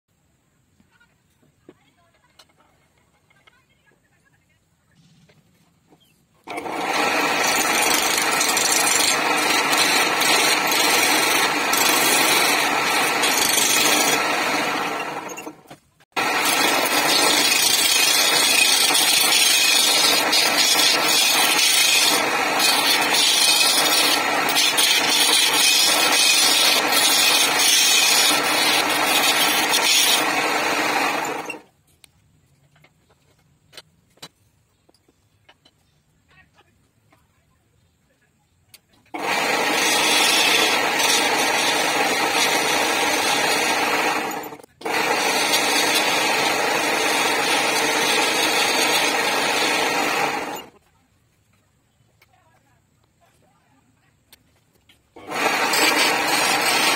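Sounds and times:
chisel scraping wood on lathe: 6.0s - 31.6s, 39.2s - 50.8s, 55.2s - 56.9s
lathe motor hum: 6.5s - 31.6s, 39.2s - 50.7s, 55.2s - 56.9s.

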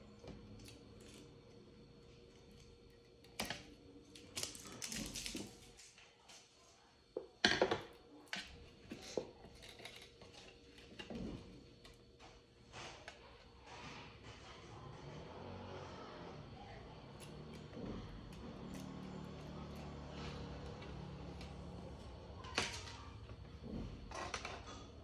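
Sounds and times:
hands working wires with scissors: 17.0s - 23.0s.

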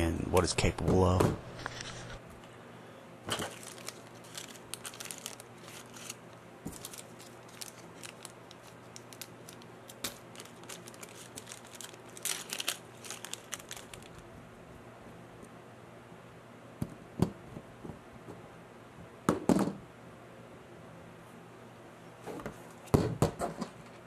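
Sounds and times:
plastic bag crinkling: 3.3s - 14.3s.

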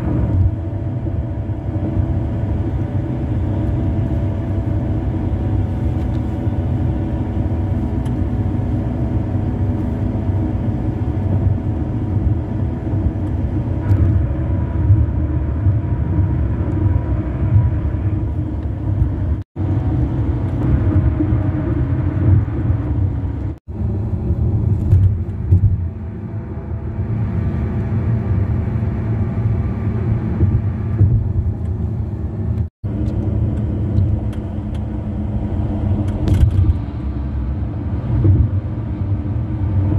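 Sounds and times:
car tyres rumbling on concrete: 0.0s - 39.9s.

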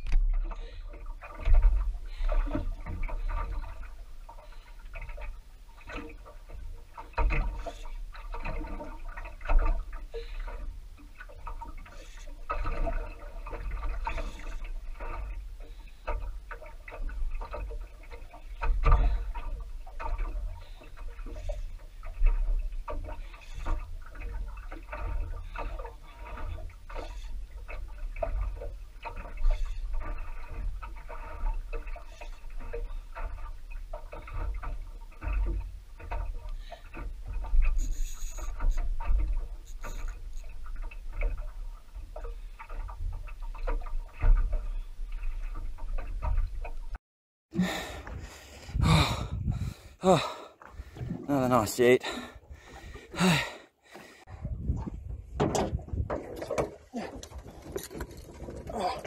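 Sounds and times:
water lapping on boat hull: 0.0s - 59.0s
low rumble of wind: 47.6s - 50.1s, 54.2s - 58.8s.

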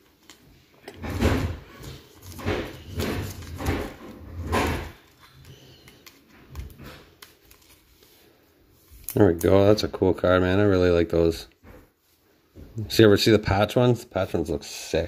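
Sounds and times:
plastic card sleeve rustling: 1.6s - 9.8s.

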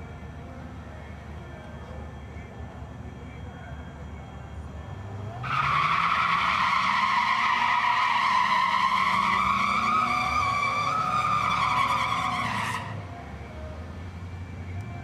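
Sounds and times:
tyre squeal: 5.4s - 13.0s.

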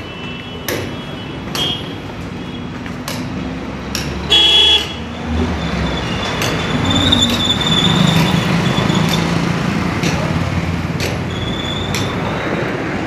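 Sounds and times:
street traffic: 0.0s - 13.0s
vehicle horn beep: 4.3s - 5.1s.

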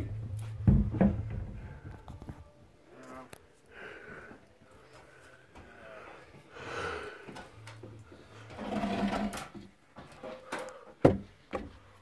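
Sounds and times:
wooden boards scraping on frame: 8.5s - 9.7s.

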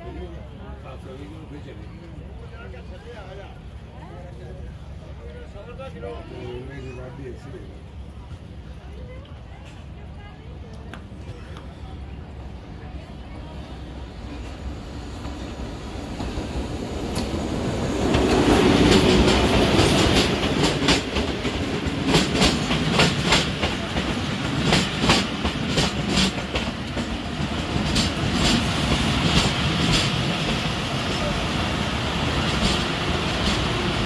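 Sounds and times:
diesel locomotive passing: 0.0s - 34.0s
wheels clacking over rail joints: 16.1s - 30.7s.

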